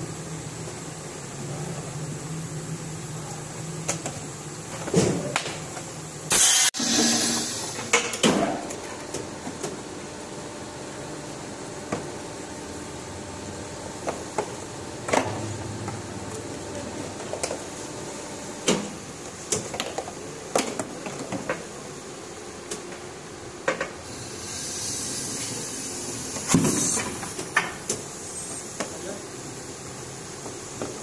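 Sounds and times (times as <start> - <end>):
steady machine hum: 0.0 - 31.0
air hiss: 6.3 - 7.9, 24.0 - 29.2.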